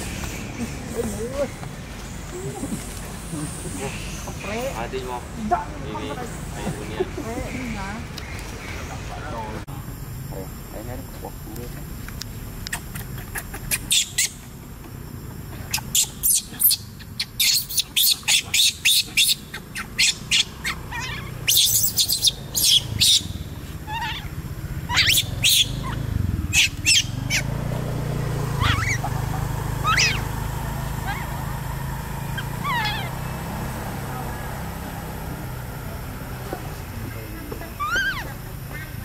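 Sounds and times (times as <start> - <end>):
infant monkey crying squeals: 12.7 - 14.4, 15.7 - 27.6, 28.6 - 31.6, 32.2 - 33.5, 37.7 - 39.0.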